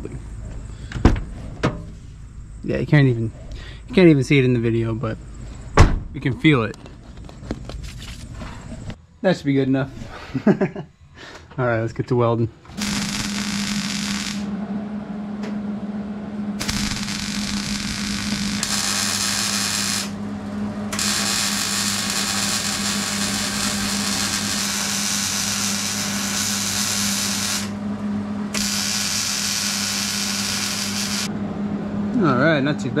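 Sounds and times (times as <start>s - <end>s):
steady low hum: 0.0s - 33.0s
welding arc crackling: 12.8s - 14.5s, 16.6s - 20.2s, 20.9s - 27.8s, 28.5s - 31.3s.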